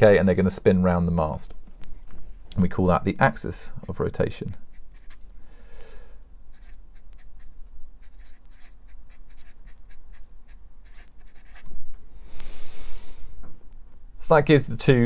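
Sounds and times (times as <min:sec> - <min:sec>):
marker pen writing on whiteboard: 0:04.7 - 0:05.3, 0:06.5 - 0:11.7.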